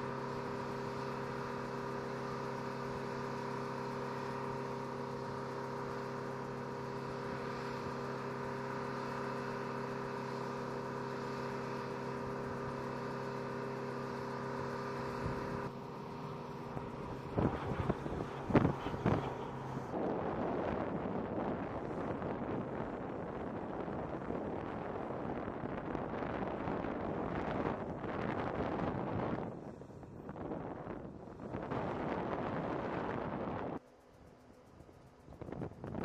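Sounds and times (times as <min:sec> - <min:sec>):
mechanical drone: 0:00.0 - 0:36.0
wind gusts on microphone: 0:16.4 - 0:33.8, 0:35.3 - 0:36.0.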